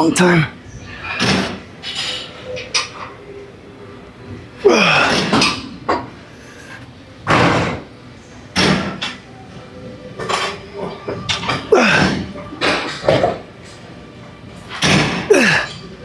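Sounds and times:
person grunting: 0:04.6 - 0:05.3, 0:11.7 - 0:12.2, 0:15.3 - 0:15.8.

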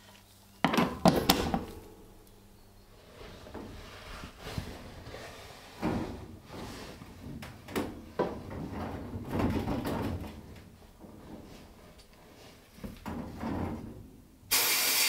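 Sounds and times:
gloves scraping and rustling: 0:02.5 - 0:07.3, 0:11.1 - 0:13.0.

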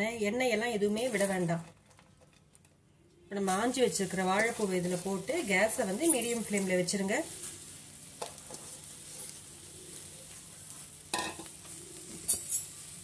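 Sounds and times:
food sizzling in a pan: 0:03.4 - 0:13.0
spoon scraping a pan: 0:03.5 - 0:12.9.

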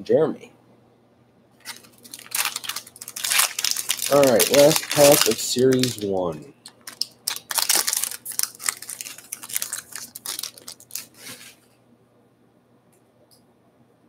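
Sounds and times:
wrapper crackling and tearing: 0:01.6 - 0:11.4.

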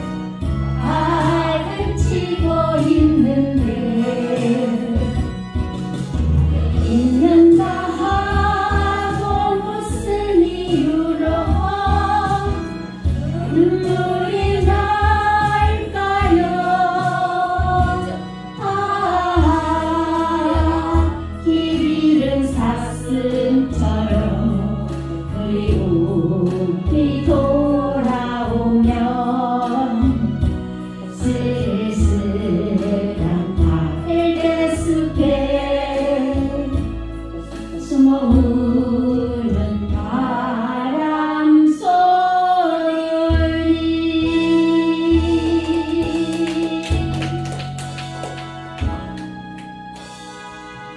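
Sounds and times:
karaoke backing track: 0:00.0 - 0:50.9
class singing in unison: 0:00.8 - 0:05.2, 0:06.6 - 0:26.0, 0:26.8 - 0:30.2, 0:31.2 - 0:36.9, 0:37.8 - 0:47.4.

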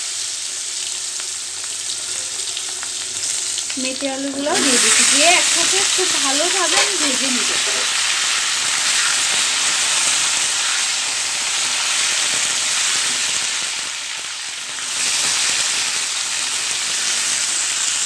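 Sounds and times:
vegetables sizzling in hot oil: 0:00.0 - 0:18.0
metal spatula stirring: 0:06.2 - 0:07.9.

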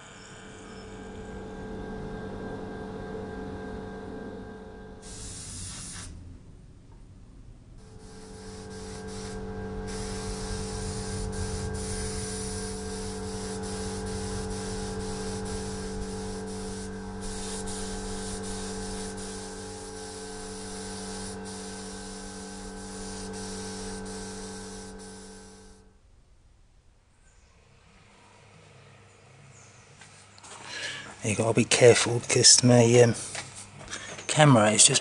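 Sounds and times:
air supply motor hum: 0:00.2 - 0:26.0
spray gun hissing: 0:05.0 - 0:06.2, 0:07.8 - 0:25.8.

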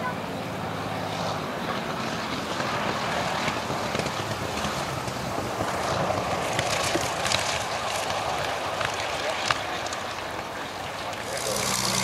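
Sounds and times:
aircraft engine drone: 0:10.6 - 0:12.0.

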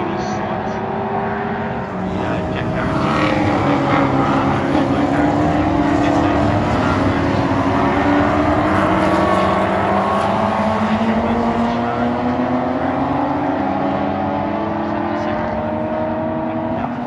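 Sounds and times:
racing car engines accelerating: 0:00.0 - 0:17.0.

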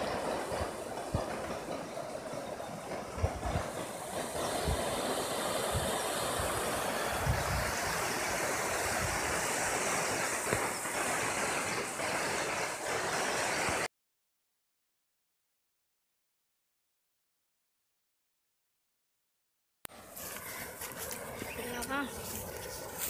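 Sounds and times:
rushing river water: 0:00.0 - 0:13.9
wind buffeting microphone: 0:00.0 - 0:13.9.

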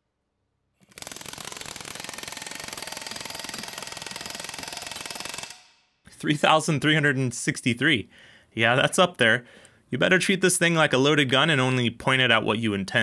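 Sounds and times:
air hammer hammering steel: 0:00.8 - 0:05.8.

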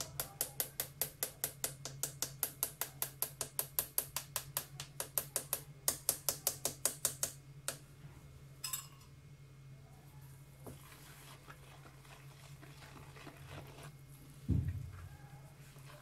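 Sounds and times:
hand tapping a mesh sieve: 0:00.0 - 0:07.8.

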